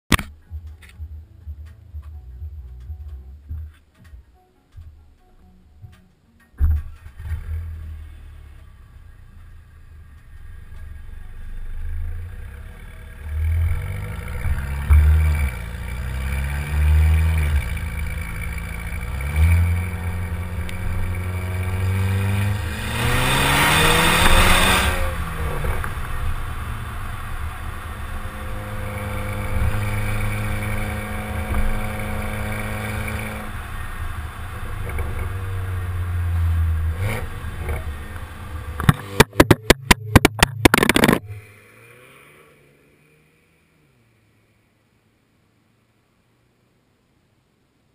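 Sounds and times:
car engine exhaust revving: 7.1s - 44.0s.

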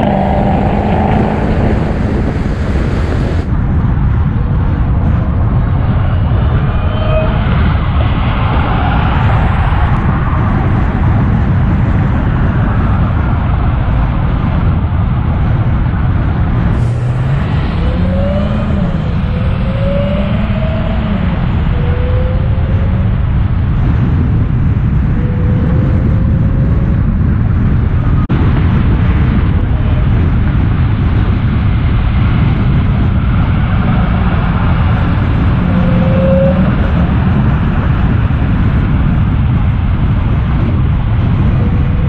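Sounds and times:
car engine deep rumble: 0.0s - 42.0s
supercharger whistle: 16.8s - 23.1s, 35.6s - 36.9s.

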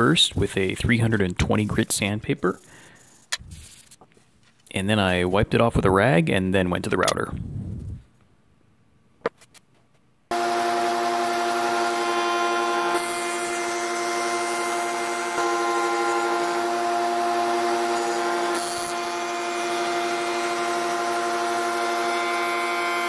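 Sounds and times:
router whining while cutting wood: 10.3s - 23.0s.

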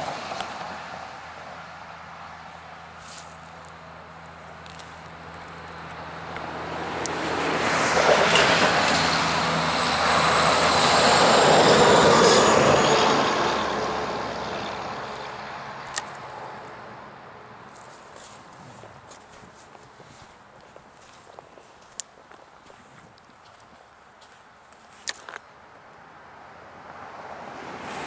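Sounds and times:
heavy truck driving over bridge: 0.0s - 2.2s, 5.9s - 17.7s.

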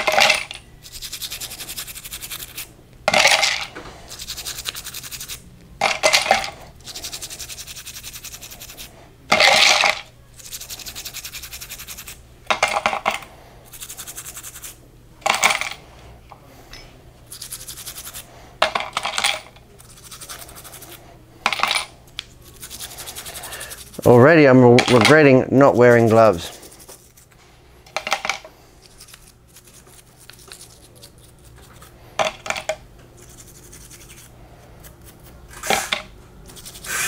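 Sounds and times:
metal parts clattering in jar: 0.0s - 0.6s
toothbrush scrubbing metal parts: 0.0s - 15.9s, 17.2s - 37.0s.

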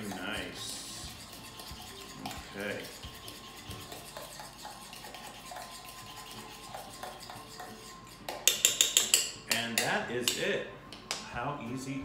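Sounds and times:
fork scraping in metal bowl: 0.0s - 10.4s
fork clinking against bowl: 1.2s - 10.4s.

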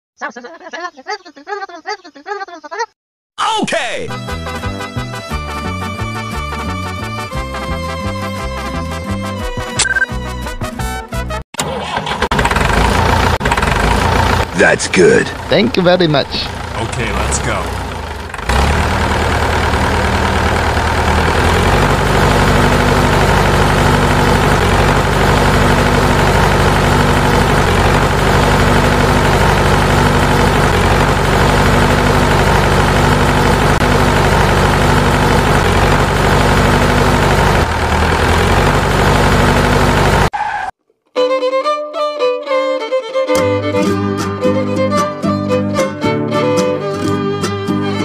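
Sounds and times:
tractor engine running: 11.6s - 40.3s.

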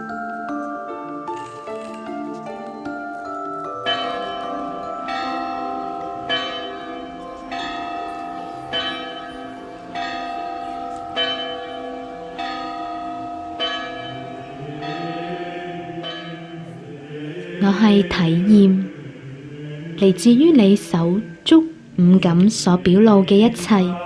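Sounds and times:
bells ringing: 0.0s - 16.9s.

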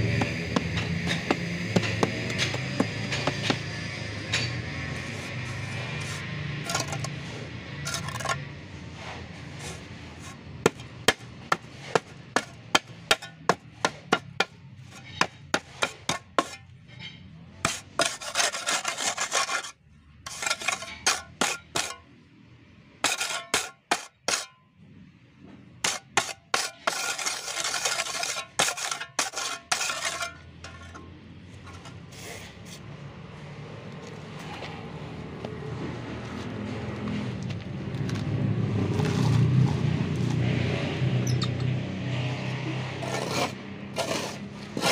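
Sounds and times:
trowel tapping steel mould: 0.0s - 3.7s
trowel scraping concrete mix: 0.0s - 22.1s, 23.0s - 24.6s, 25.8s - 32.9s, 37.9s - 41.6s, 42.5s - 44.9s.

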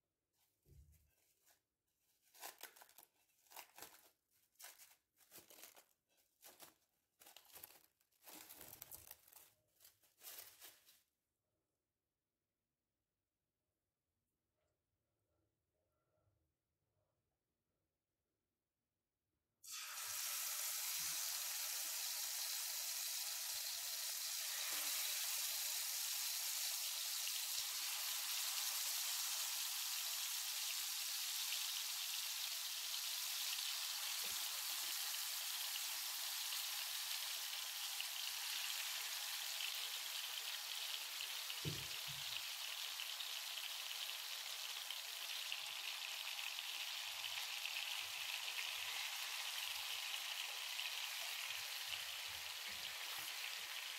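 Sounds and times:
chicken sizzling in frying pan: 19.6s - 53.9s.

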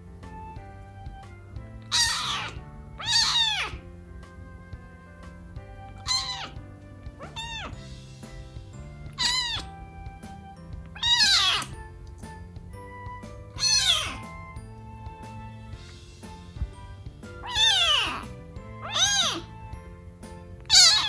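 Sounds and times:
soft background music: 0.0s - 21.0s
kitten meowing: 1.8s - 3.9s, 5.8s - 7.9s, 9.0s - 11.8s, 13.5s - 14.6s, 17.4s - 19.6s, 20.6s - 21.0s.

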